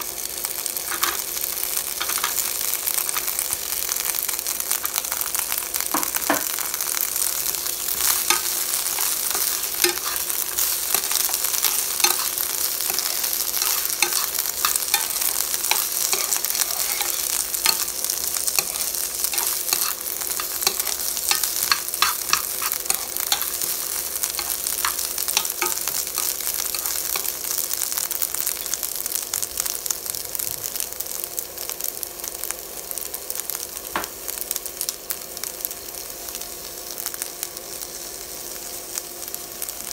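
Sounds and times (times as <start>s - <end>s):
vegetables sizzling in hot oil: 0.0s - 39.9s
spatula scraping a pan: 8.0s - 17.9s, 18.5s - 27.3s.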